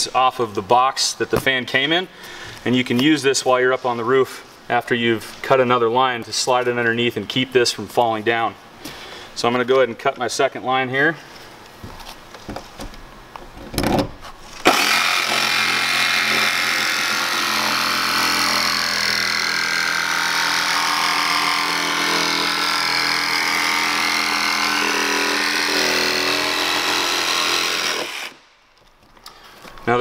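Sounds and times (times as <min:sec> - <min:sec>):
jigsaw cutting sheet metal: 0:14.6 - 0:28.4.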